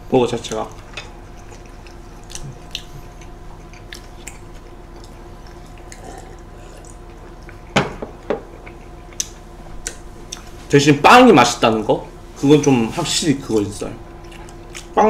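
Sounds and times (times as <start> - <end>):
wet chewing and lip-smacking: 0.5 - 10.6, 14.2 - 15.0.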